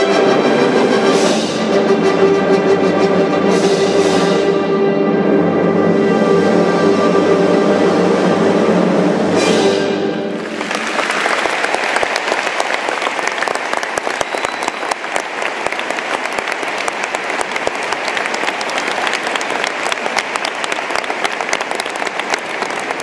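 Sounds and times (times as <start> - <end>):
audience applauding: 10.3 - 23.0.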